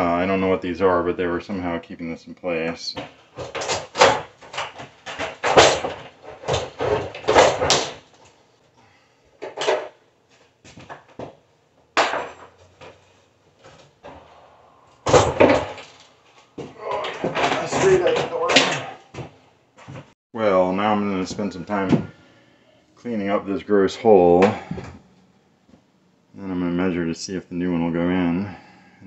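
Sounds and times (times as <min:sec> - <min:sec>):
sheet metal clunking on wood: 0:03.0 - 0:08.1, 0:12.0 - 0:13.0.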